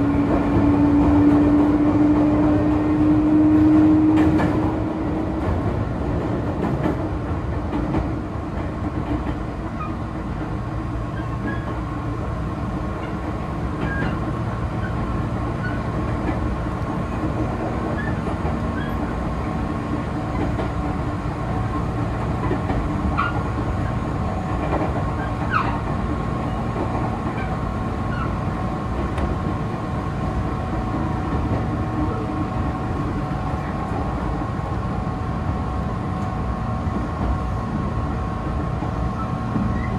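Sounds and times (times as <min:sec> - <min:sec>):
train wheels rumbling on rails: 0:00.0 - 0:39.9.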